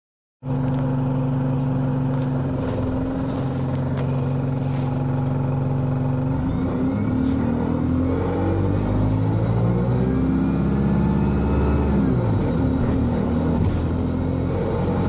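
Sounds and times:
bus diesel engine running: 0.4s - 15.0s
high whine rising in pitch: 6.2s - 15.0s.

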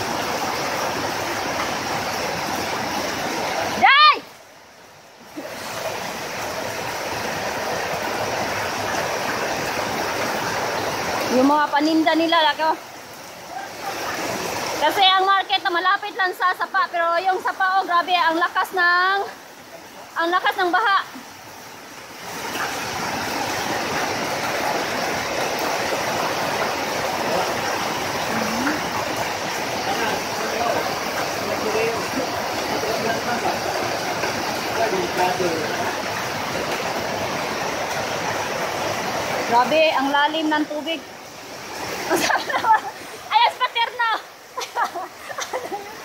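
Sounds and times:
floodwater running: 0.0s - 46.0s
heavy rain downpour: 0.0s - 46.0s.

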